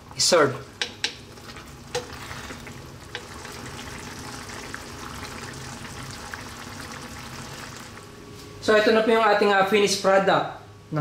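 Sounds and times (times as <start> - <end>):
stew bubbling in a pan: 0.0 - 8.2.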